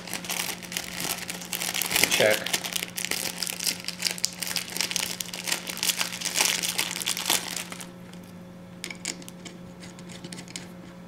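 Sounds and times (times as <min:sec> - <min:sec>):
plastic packaging crinkling: 0:00.0 - 0:07.9
steady low hum: 0:00.0 - 0:11.0.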